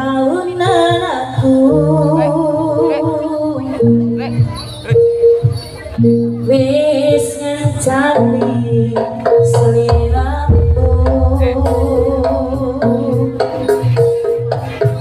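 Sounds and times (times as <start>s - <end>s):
person singing: 7.4s - 13.8s
gamelan ensemble music: 8.2s - 15.0s
deep low note: 9.9s - 13.4s.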